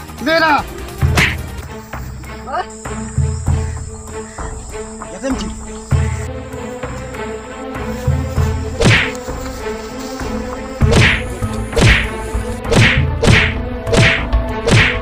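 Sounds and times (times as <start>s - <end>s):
background music tone: 0.0s - 15.0s
punch and kick smacks: 1.1s - 1.5s, 8.8s - 9.1s, 10.9s - 15.0s.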